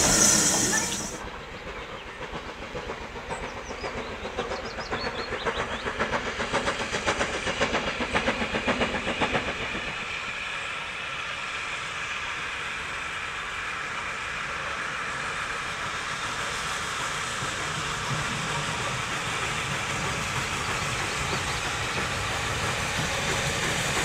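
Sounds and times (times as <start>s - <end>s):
steam hiss: 0.0s - 1.4s, 2.1s - 24.0s
steam locomotive exhaust beat: 0.0s - 24.0s.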